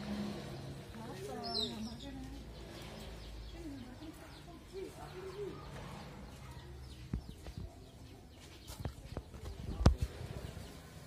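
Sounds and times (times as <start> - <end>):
faint outdoor background: 0.0 - 11.0.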